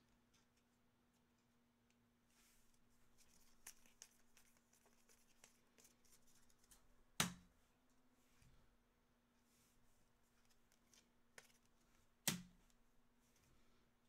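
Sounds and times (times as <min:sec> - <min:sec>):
trading cards rustling: 0:03.0 - 0:06.9, 0:10.3 - 0:12.0.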